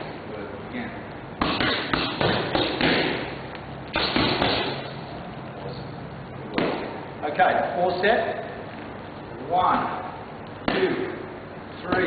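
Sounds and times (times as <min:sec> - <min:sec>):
boxing gloves punching mitts: 0:01.4 - 0:05.0, 0:06.5 - 0:07.0.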